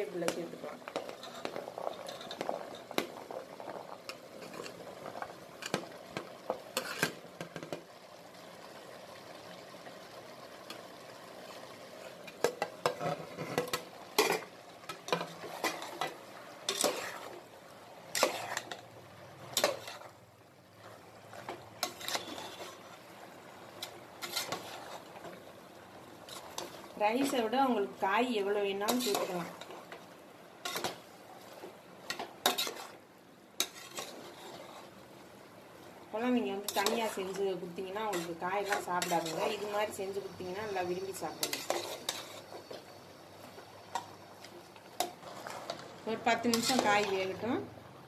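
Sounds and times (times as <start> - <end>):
faint frying sizzle: 0.0 - 48.0
steel spoon scraping pot: 0.9 - 3.0, 3.7 - 4.8, 6.7 - 7.2, 12.0 - 17.4, 18.1 - 18.9, 19.5 - 20.1, 21.4 - 23.0, 23.8 - 25.4, 26.2 - 27.6, 28.8 - 29.9, 30.6 - 31.0, 32.1 - 33.0, 33.6 - 34.9, 36.2 - 42.8, 43.9 - 47.5.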